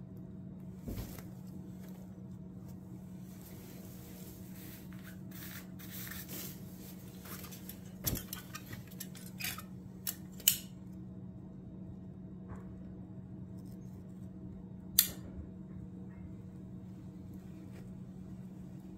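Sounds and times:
steady low hum: 0.0 - 18.9
rustling: 0.8 - 9.4.

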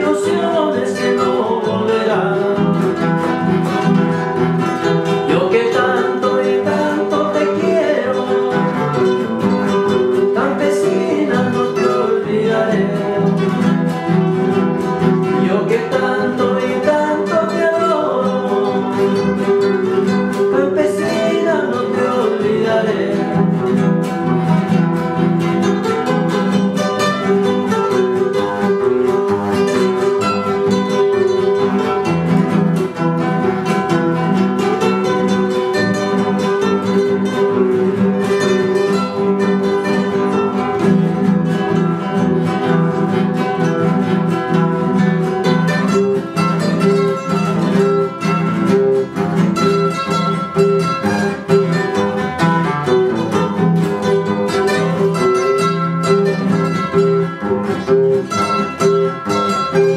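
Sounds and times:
man singing: 0.0 - 27.7
acoustic guitars strumming: 0.0 - 59.9.

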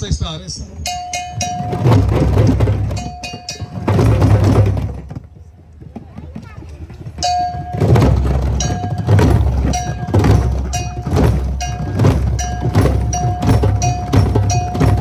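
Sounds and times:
hand drums playing: 0.8 - 15.0.

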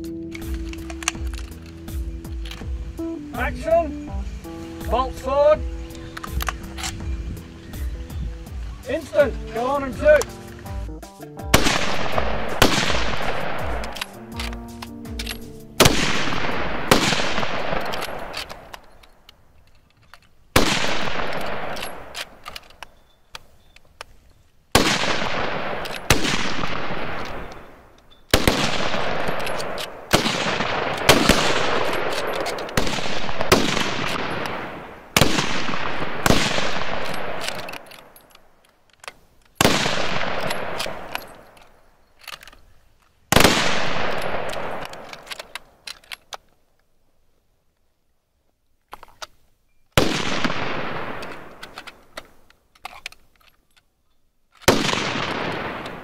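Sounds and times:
rifle shots echoing: 11.4 - 19.4, 20.5 - 23.1, 24.7 - 38.6, 39.6 - 42.4, 43.3 - 45.9, 50.0 - 52.4, 54.6 - 56.0.

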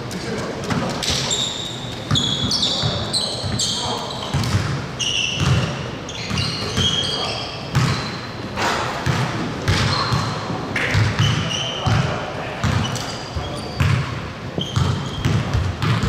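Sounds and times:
sneaker squeaks on floor: 1.0 - 8.4, 9.0 - 16.0
basketball bouncing: 4.3 - 4.8, 5.4 - 5.7, 7.7 - 8.1, 9.0 - 12.9, 13.8 - 16.0.

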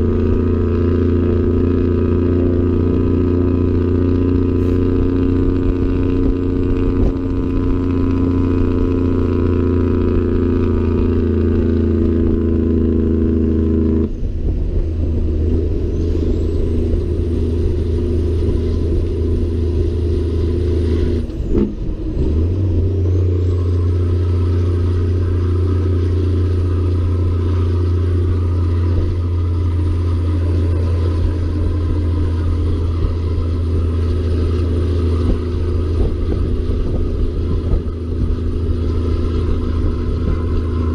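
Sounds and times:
diesel truck engine pulling: 0.0 - 40.9
high turbo whistle: 15.5 - 21.4, 22.8 - 40.9.

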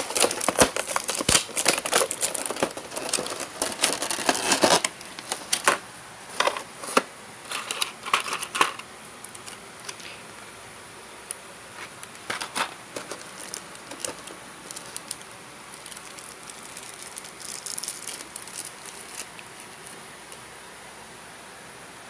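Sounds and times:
plastic packaging crinkling: 0.0 - 10.0, 11.7 - 20.4.

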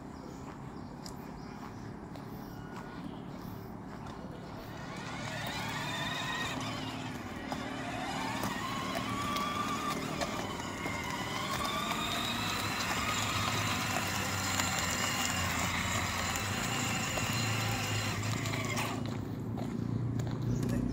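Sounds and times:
plastic wheels rolling on asphalt: 4.0 - 20.7
electric motor whine: 4.6 - 19.2.

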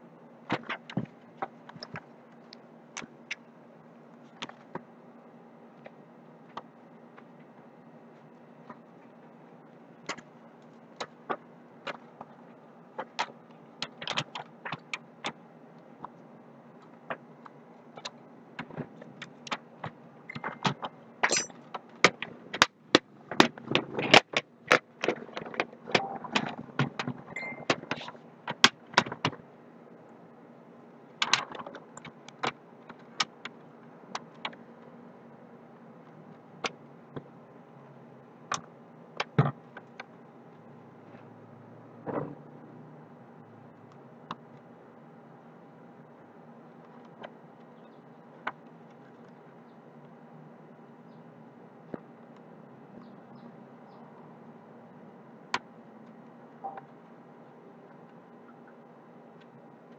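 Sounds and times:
faint steady hum: 0.0 - 59.9
plastic laptop parts clicking: 13.0 - 15.0.

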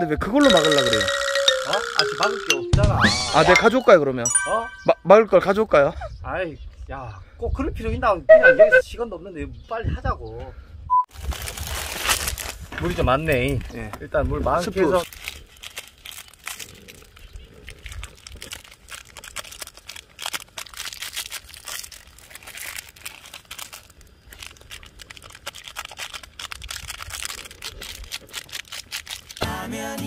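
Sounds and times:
plastic packets crinkling and tearing: 11.1 - 13.9, 14.7 - 29.4.

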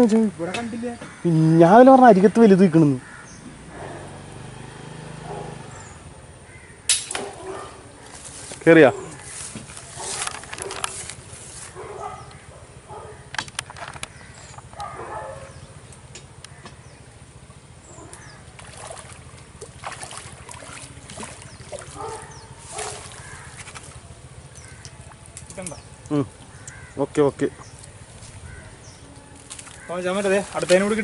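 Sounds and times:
birds calling: 0.0 - 31.0
sharp clicks: 13.3 - 15.0.

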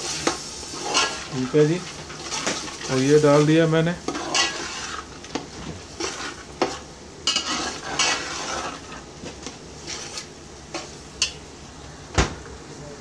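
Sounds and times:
metal spatula scraping pot: 0.0 - 9.0, 9.8 - 10.9
food sizzling in oil: 0.0 - 11.6.

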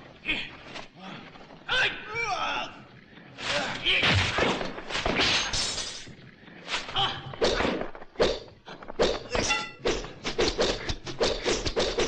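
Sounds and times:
whip-like swishes: 3.4 - 12.0.

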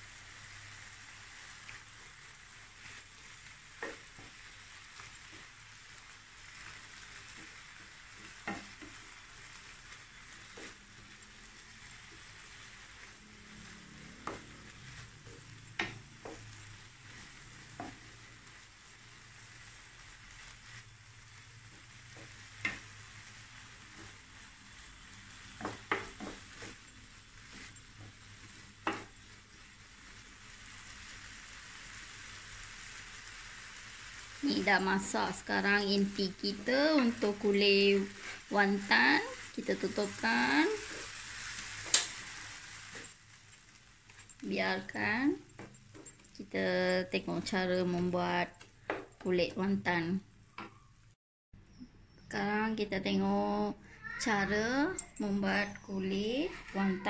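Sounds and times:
food sizzling in a pan: 0.0 - 57.0
wooden spatula scraping a pan: 0.2 - 49.8, 54.3 - 57.0.

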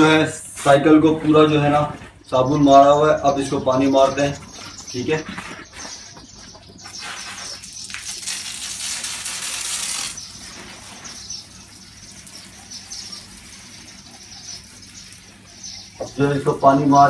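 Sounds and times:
hose water spraying on bicycle: 6.9 - 16.2.

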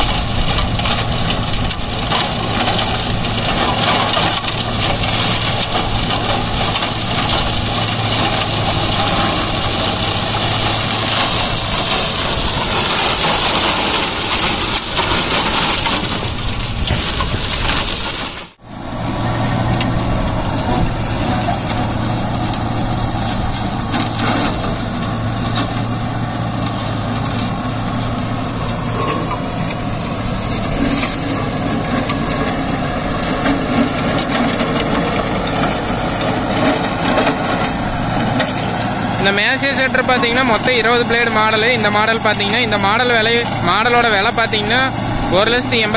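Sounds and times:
flail shredder chopping crop: 0.0 - 45.9
tractor engine hum: 0.0 - 45.9.

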